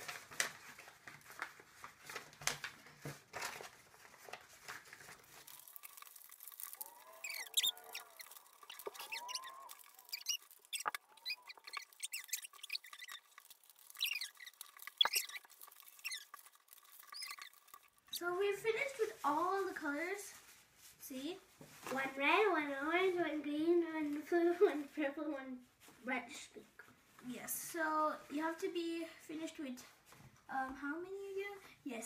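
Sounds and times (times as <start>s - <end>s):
paper folding and crinkling: 0.0s - 22.2s
small clicks and squeaks: 4.7s - 18.3s.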